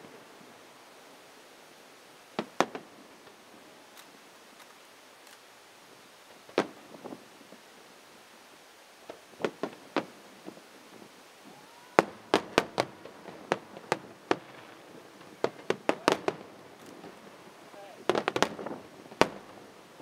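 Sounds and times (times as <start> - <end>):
firework shells bursting with bangs: 2.4 - 3.4, 11.5 - 19.7.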